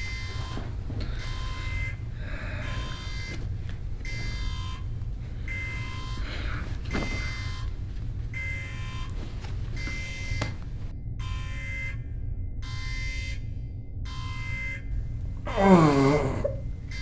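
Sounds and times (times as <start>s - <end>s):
steady low rumble: 0.0s - 17.0s
electronic alarm buzzer beeping: 1.2s - 3.4s, 4.0s - 4.9s, 5.5s - 6.2s, 7.1s - 7.7s, 8.3s - 9.1s, 14.1s - 14.9s.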